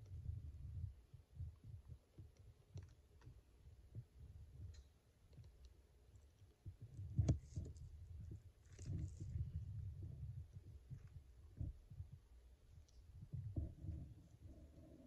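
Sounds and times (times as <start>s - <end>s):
faint low rumbling: 0.0s - 15.0s
soft thumps on the microphone: 6.6s - 12.3s, 13.1s - 15.0s.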